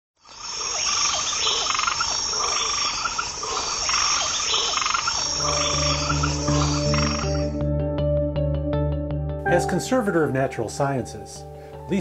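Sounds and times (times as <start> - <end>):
short frog calls: 0.2 - 7.5
high-pitched insect trill: 0.2 - 7.6
soft music notes: 5.4 - 12.0.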